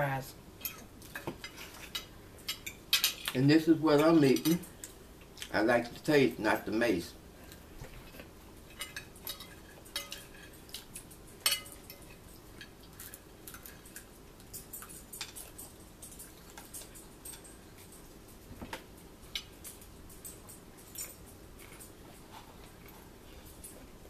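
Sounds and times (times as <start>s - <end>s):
forks clinking on plates: 4.0s - 4.7s, 8.7s - 18.1s.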